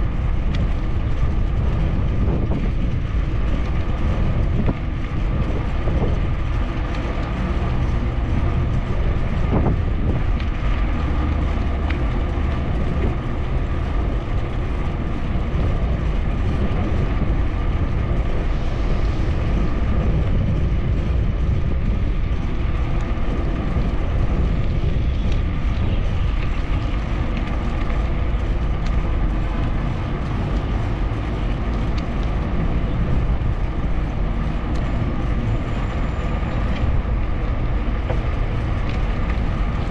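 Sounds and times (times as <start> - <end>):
bike rattles and clicks: 0.0 - 39.9
tyres rumbling on pavement: 0.0 - 39.9
wind on microphone: 0.0 - 39.9.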